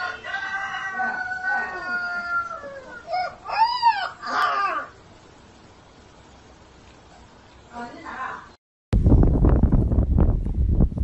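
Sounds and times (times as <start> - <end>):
puppy howling: 0.0 - 5.0
puppy yipping: 3.0 - 4.9.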